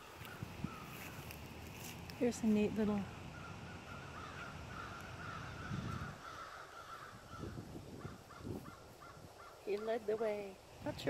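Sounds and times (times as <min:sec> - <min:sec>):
low outdoor rumble: 0:00.0 - 0:09.0
crows cawing: 0:00.2 - 0:01.4, 0:03.3 - 0:10.0.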